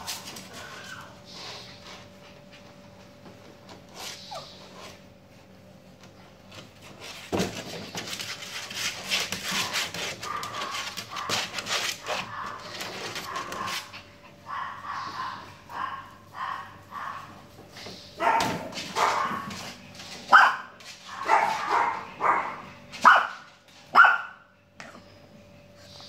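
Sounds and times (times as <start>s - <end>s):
puppies whining and yipping: 0.4s - 1.8s, 3.9s - 5.0s
scuffling and clicking in playpen: 6.0s - 14.0s, 17.0s - 22.0s.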